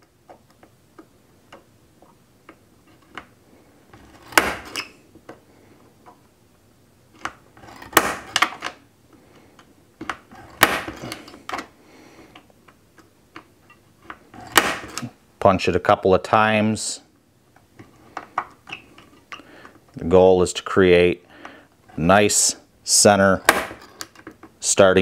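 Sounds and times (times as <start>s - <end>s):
center punch snapping: 4.3s - 4.8s, 7.9s - 8.7s, 10.5s - 11.2s, 14.5s - 15.0s, 23.4s - 23.8s.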